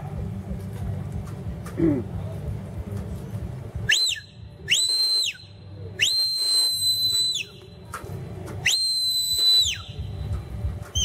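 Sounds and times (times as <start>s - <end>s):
high herding whistle blasts: 3.9s - 7.8s, 8.6s - 11.0s.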